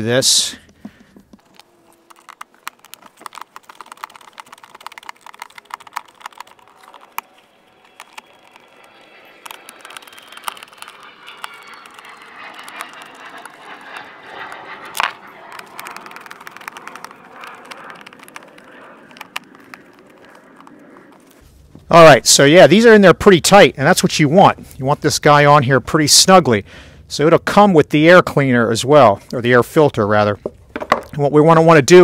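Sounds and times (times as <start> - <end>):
screwdriver scraping: 1.4 - 20.5.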